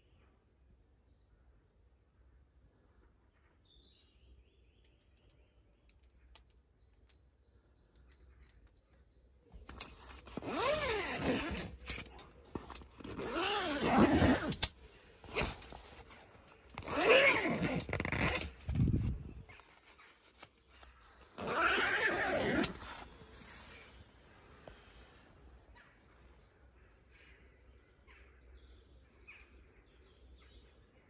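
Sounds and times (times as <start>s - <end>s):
zip being pulled open: 9.8s - 20.0s, 21.3s - 23.9s.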